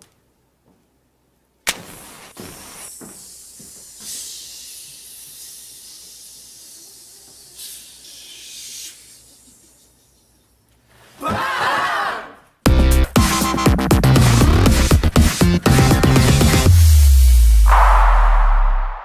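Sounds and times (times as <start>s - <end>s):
hiss: 1.8s - 10.2s
teenagers shouting and cheering: 11.2s - 12.4s.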